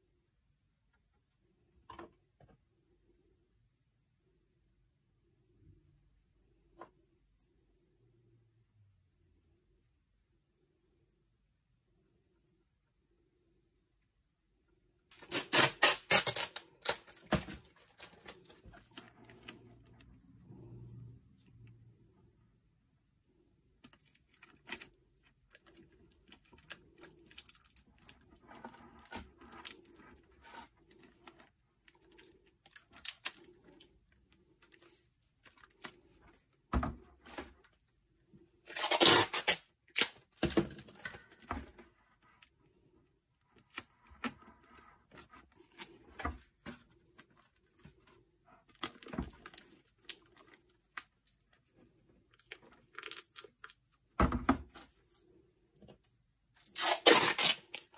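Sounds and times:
plastic film crinkling: 0:15.1 - 0:20.1, 0:23.8 - 0:33.9.

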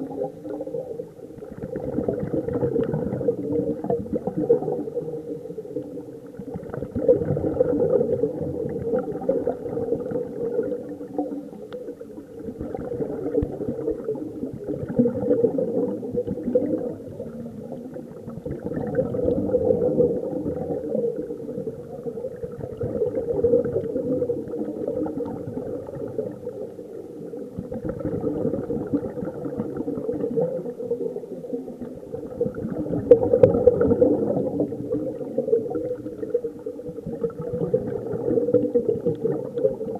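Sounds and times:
bubbles gurgling underwater: 0:00.0 - 0:39.9.

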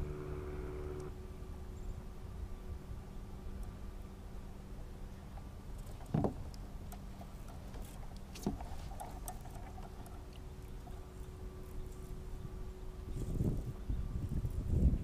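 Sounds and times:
wind and water noise: 0:00.0 - 0:15.0
dull thump of casting: 0:06.0 - 0:06.4, 0:08.3 - 0:08.7.

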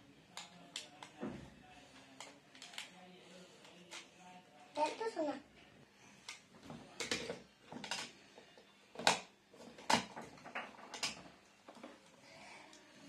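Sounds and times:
plastic toy instruments clacking: 0:07.0 - 0:08.2.

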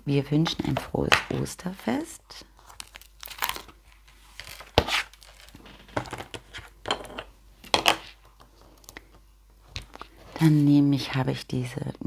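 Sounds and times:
plastic rustles: 0:02.5 - 0:06.6
plastic crinkling and clicking: 0:02.6 - 0:06.6.

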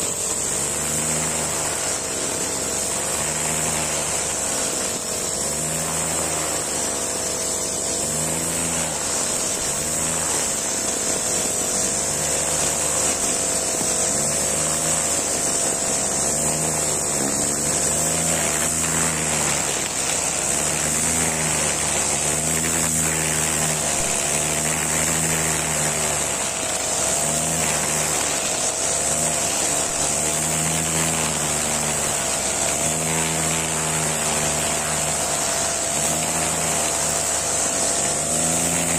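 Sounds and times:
brush cutter engine running: 0:00.0 - 0:38.9
string line cutting grass: 0:00.0 - 0:38.9.

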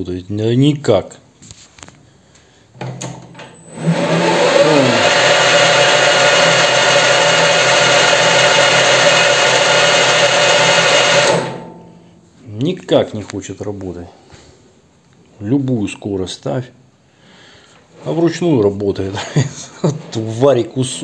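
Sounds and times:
lathe motor whine: 0:03.4 - 0:11.8.

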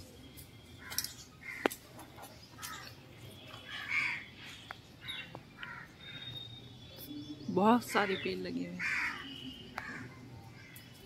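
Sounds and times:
crows cawing: 0:00.8 - 0:01.8, 0:02.6 - 0:02.9, 0:03.7 - 0:04.3, 0:05.0 - 0:06.2, 0:08.8 - 0:10.8.

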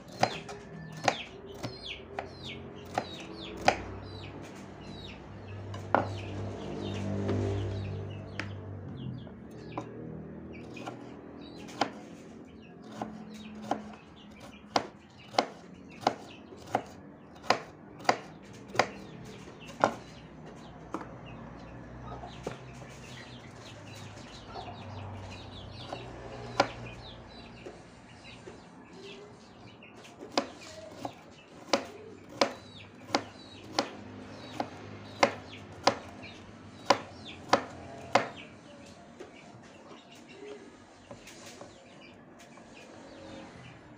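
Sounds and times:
knife chopping on wooden board: 0:00.0 - 0:04.0, 0:05.7 - 0:06.3, 0:10.6 - 0:12.2, 0:12.8 - 0:20.2, 0:25.8 - 0:27.0, 0:30.1 - 0:38.4.

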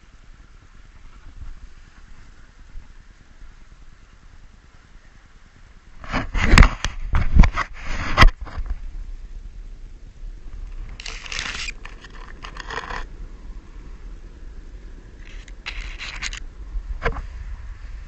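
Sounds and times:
scraping rustle: 0:06.0 - 0:08.9, 0:10.6 - 0:13.1, 0:15.2 - 0:16.4
camera handling knocks and scrapes: 0:06.1 - 0:08.7, 0:10.9 - 0:13.0, 0:15.2 - 0:16.4.

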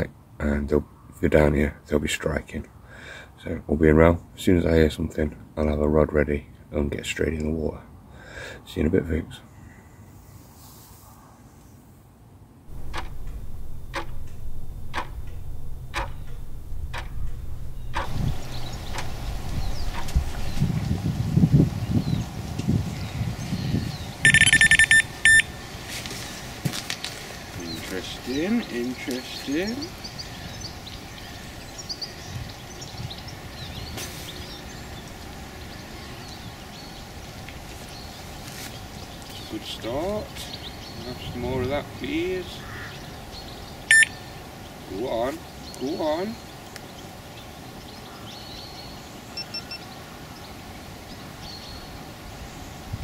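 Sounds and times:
clock ticking: 0:12.7 - 0:19.2, 0:24.3 - 0:25.5
sharp click: 0:12.7 - 0:20.3
low steady rumble: 0:12.7 - 0:22.6
small birds chirping: 0:12.7 - 0:26.6, 0:27.4 - 0:53.0.

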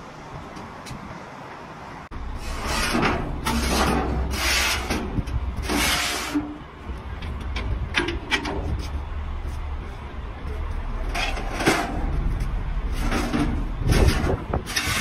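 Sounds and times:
low steady rumble: 0:01.6 - 0:15.0
metal ramp scraping: 0:02.2 - 0:09.0, 0:11.0 - 0:15.0.

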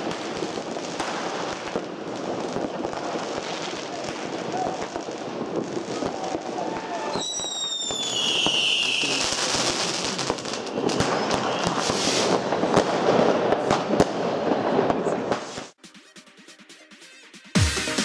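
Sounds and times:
firecrackers crackling and popping: 0:00.0 - 0:15.8
firework bangs: 0:00.0 - 0:15.8
firework whistling: 0:04.2 - 0:13.9.

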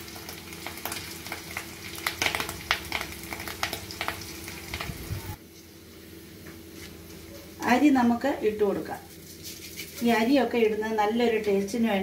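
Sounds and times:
food sizzling in hot oil: 0:00.0 - 0:05.4
leaves crackling and popping in oil: 0:00.0 - 0:05.4, 0:08.4 - 0:12.0.

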